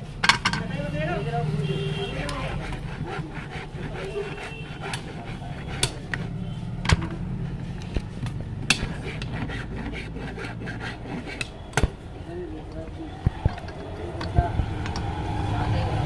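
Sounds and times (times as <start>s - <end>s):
sharp metallic taps: 4.8s - 10.0s, 11.1s - 12.0s, 12.7s - 15.2s.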